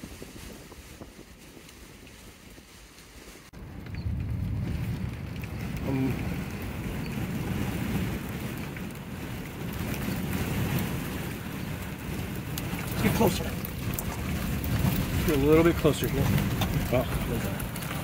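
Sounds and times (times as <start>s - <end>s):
strong wind buffeting microphone: 0.0s - 18.0s.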